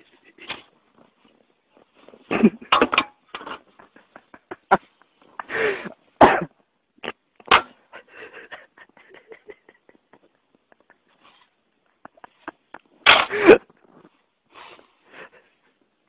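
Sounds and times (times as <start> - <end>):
person coughing and wheezing: 6.2 - 7.2, 13.1 - 13.8.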